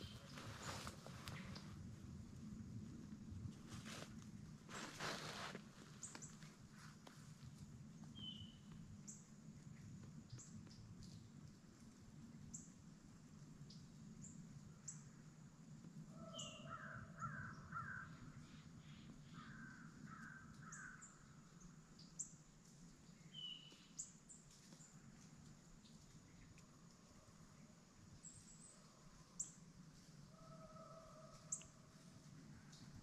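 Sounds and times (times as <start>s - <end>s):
low steady hum: 0.0s - 16.1s.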